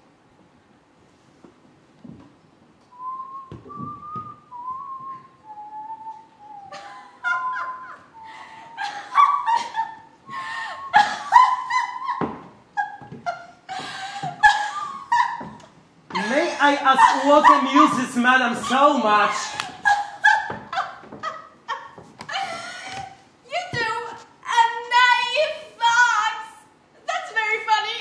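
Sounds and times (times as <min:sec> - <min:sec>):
person whistling a tune: 0:02.9 - 0:06.8
woman cackling laughter: 0:06.6 - 0:23.2.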